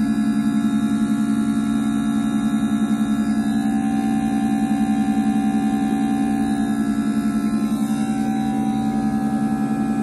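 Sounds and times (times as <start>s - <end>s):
pump and motor humming: 0.0s - 10.0s.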